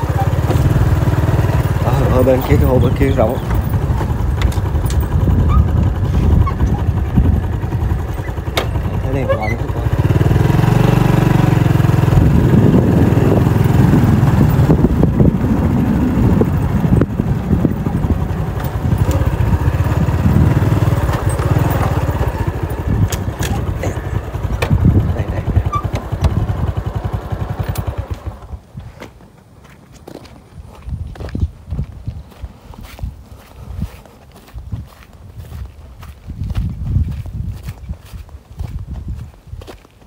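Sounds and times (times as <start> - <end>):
knocks and rattles: 0.0 - 10.1
motorbike engine running: 0.0 - 28.6.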